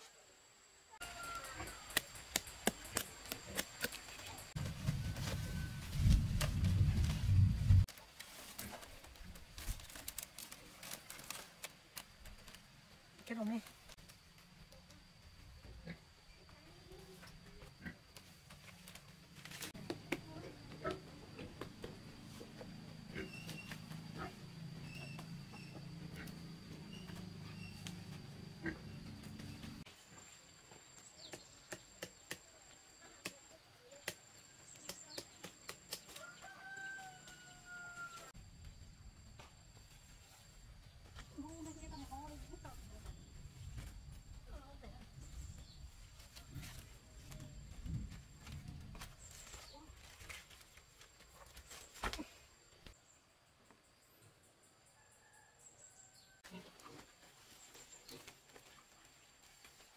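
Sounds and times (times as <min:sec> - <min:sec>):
high chirps of birds and insects: 0:00.5 - 0:07.7, 0:09.9 - 0:56.6
rustling through undergrowth: 0:01.8 - 0:15.1, 0:16.8 - 0:20.3, 0:39.7 - 0:52.9.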